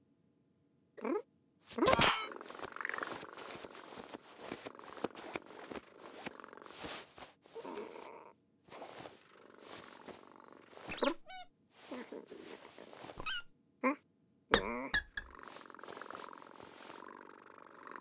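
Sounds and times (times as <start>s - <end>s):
cartoon cat purring: 1.0s - 14.0s, 14.6s - 18.0s
rustling of fur bed: 2.4s - 8.1s, 8.7s - 11.2s, 11.8s - 13.4s, 15.3s - 17.3s
high squeaky calls: 10.8s - 12.1s, 13.2s - 13.5s.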